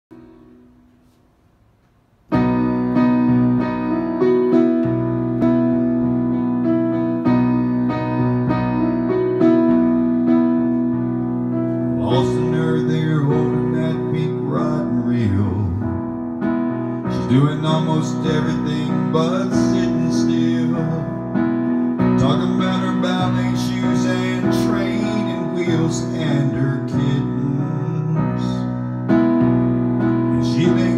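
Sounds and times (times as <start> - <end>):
digital piano chords: 0.1 - 30.9
man singing: 11.9 - 16.1, 17.1 - 21.4, 22.0 - 28.8, 30.3 - 30.9.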